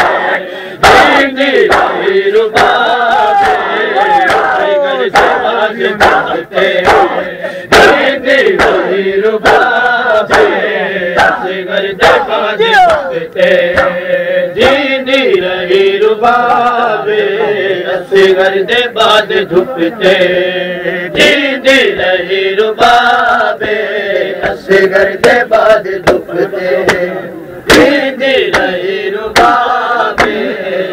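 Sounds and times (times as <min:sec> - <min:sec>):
crowd of men chanting in unison: 0:00.0 - 0:30.9
hands slapping bare chests: 0:00.8 - 0:02.0, 0:05.1 - 0:09.7, 0:10.3 - 0:10.6, 0:27.7 - 0:29.6, 0:30.2 - 0:30.4.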